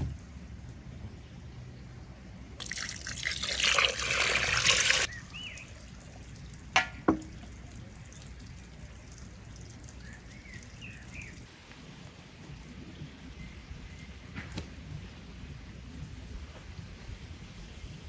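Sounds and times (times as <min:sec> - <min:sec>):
water splashing onto meat in bowl: 0:02.6 - 0:05.1.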